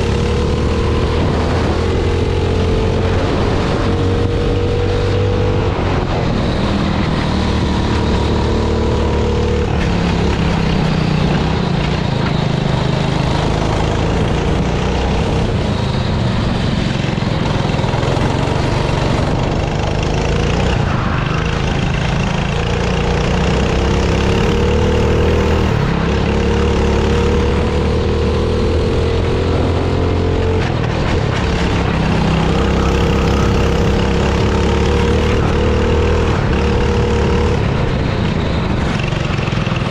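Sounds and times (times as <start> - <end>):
kart engine running hard: 0.0 - 39.9.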